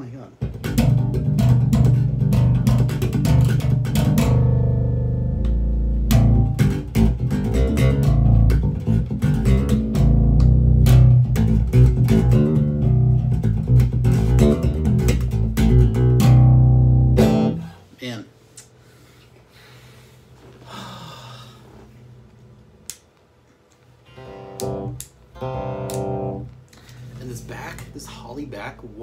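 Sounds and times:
electric bass played fingerstyle: 0.4 - 17.8, 24.0 - 28.6.

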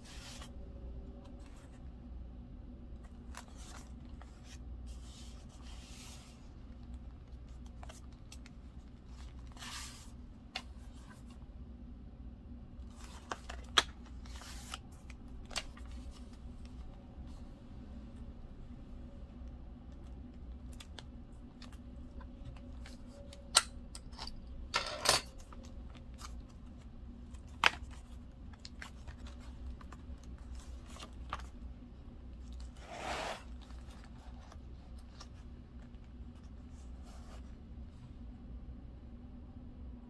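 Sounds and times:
steady low hum: 0.0 - 40.0
paper rustling: 3.0 - 11.4, 12.8 - 17.5, 25.4 - 37.6.

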